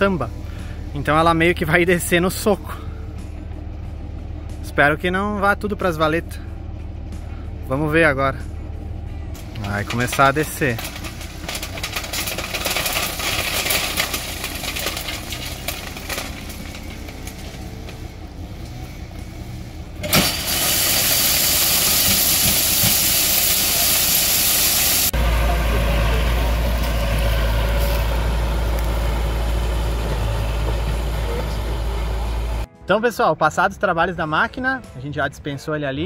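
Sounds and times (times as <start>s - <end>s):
dump truck engine running: 0.0s - 32.8s
heavy low rumble: 0.0s - 32.8s
crushed stone pouring out: 9.6s - 17.9s, 20.1s - 25.1s.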